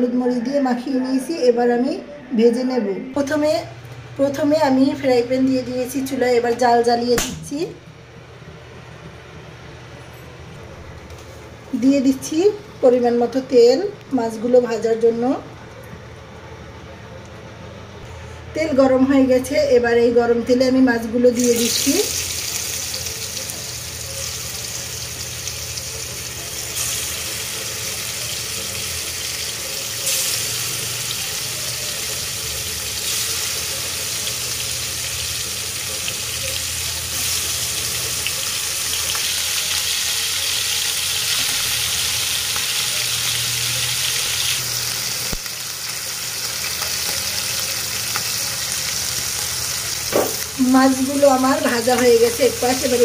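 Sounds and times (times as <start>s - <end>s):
fish sizzling in hot oil: 21.4s - 53.0s.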